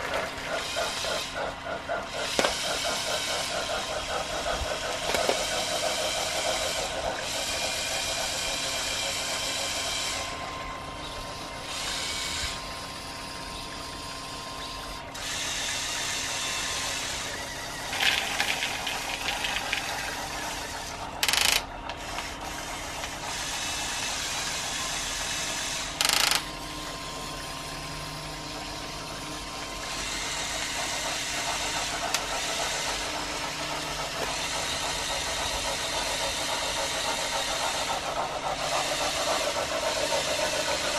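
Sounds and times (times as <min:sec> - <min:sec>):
toy excavator motors whirring: 0:00.0 - 0:10.4, 0:11.6 - 0:27.2, 0:29.8 - 0:40.9
rattle of clicks: 0:17.9 - 0:20.0, 0:21.2 - 0:22.3, 0:26.0 - 0:26.5.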